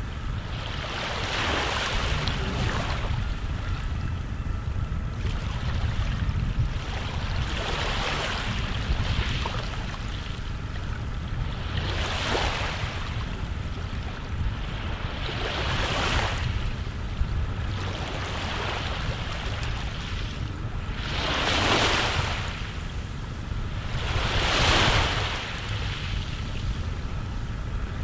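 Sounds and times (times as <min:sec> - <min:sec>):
ocean surf washing in: 0:00.0 - 0:03.4
low wind rumble: 0:00.0 - 0:28.0.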